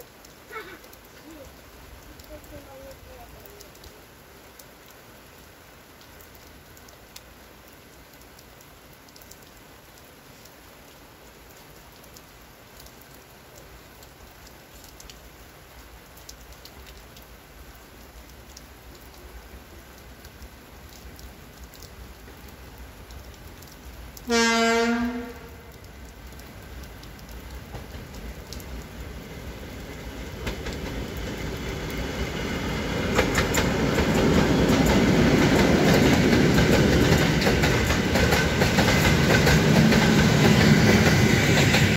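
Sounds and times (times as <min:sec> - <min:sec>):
steady rain falling: 0:00.0 - 0:41.9
locomotive horn blast: 0:24.3 - 0:25.7.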